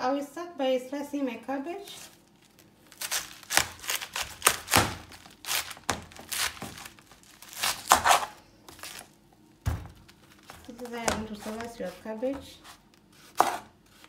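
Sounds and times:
knife crunching through cabbage: 2.0s - 9.2s, 10.2s - 14.0s.

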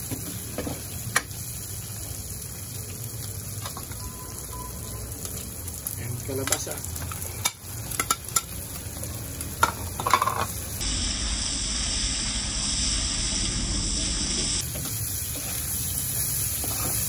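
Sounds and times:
food sizzling in a wok: 0.0s - 17.0s.

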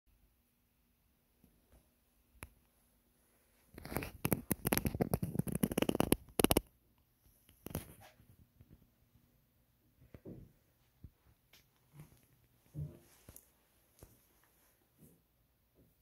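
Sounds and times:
phone microphone handling noise: 3.7s - 6.6s.

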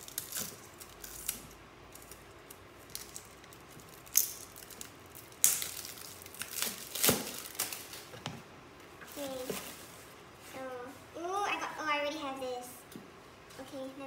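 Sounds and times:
plastic crinkling: 0.0s - 8.2s, 9.1s - 10.0s.

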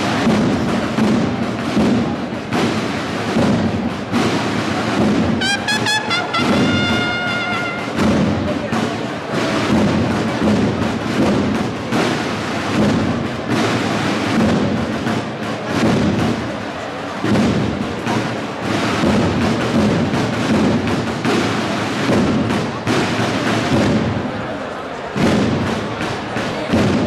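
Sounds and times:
steady drum beat: 0.0s - 27.0s
cornets playing march: 5.4s - 8.2s.

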